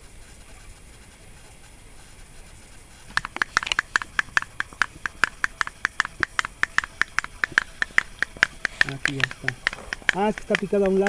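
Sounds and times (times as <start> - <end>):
small animal chirping: 3.1 - 11.0.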